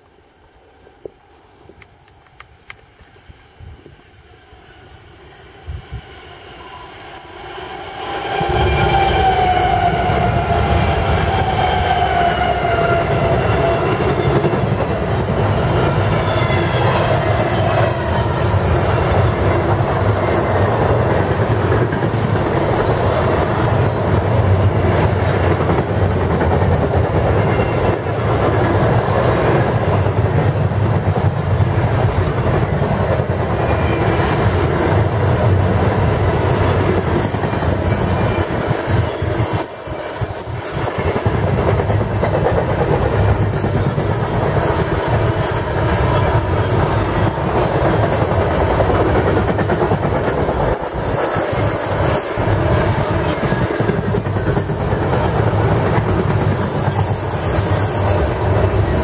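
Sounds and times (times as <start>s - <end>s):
diesel locomotive engine: 0.0s - 59.0s
freight train rumbling past: 2.6s - 59.0s.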